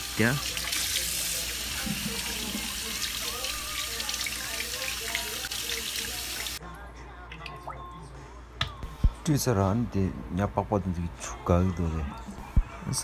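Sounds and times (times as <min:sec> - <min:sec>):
tap water running and splashing: 0:00.0 - 0:06.6.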